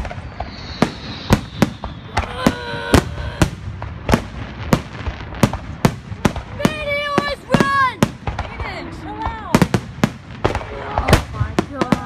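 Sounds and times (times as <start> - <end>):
fireworks bangs: 0.0 - 12.0
steady high tone: 0.2 - 3.4.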